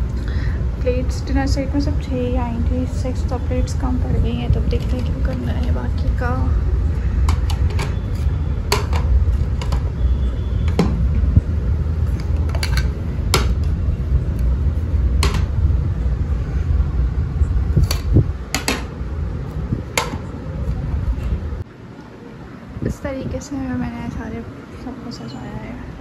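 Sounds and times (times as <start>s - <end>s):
low rumble: 0.0s - 21.6s.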